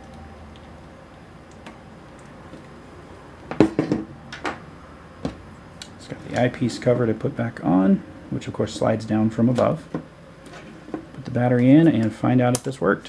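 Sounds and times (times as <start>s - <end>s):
camera body knocking on table: 3.5s - 4.1s.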